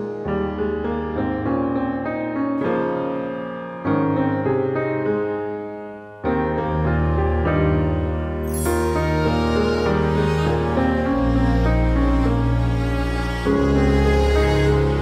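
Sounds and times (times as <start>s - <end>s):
keyboard playing chords: 8.0s - 15.0s.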